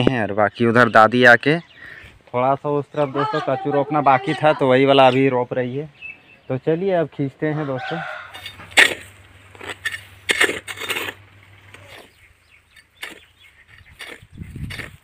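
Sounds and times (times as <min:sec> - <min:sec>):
hoe chopping into dry soil: 0:08.3 - 0:15.0.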